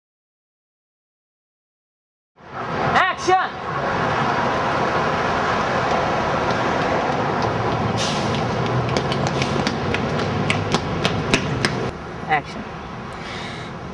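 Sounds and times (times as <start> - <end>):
city street traffic: 2.4 - 13.9
footsteps on concrete: 5.8 - 11.9.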